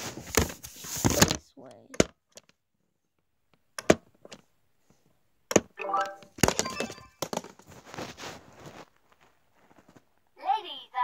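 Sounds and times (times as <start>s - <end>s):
rustling: 7.3s - 10.3s.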